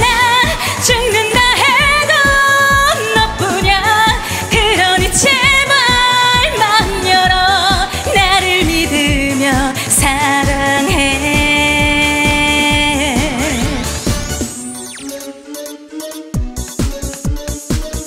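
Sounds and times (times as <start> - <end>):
woman singing into microphone: 0.0 - 14.0
dance-pop backing track: 0.0 - 18.0.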